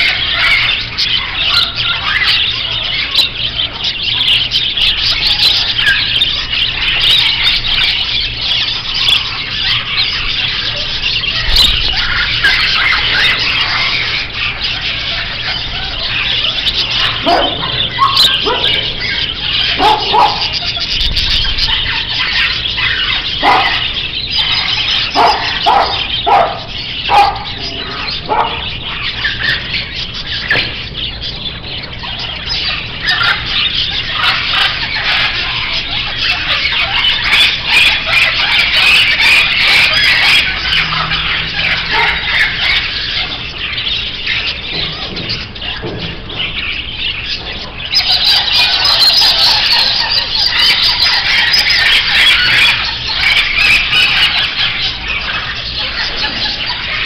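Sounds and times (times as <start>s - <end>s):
caged birds chattering: 0.0s - 57.0s
louder lower bird calls: 0.0s - 57.0s.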